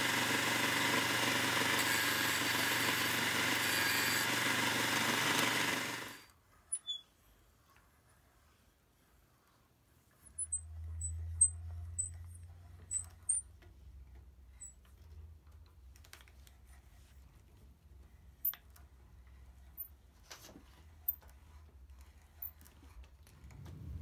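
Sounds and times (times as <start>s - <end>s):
hand brace boring into wood: 0.0s - 6.3s
high squeaks: 6.7s - 7.2s.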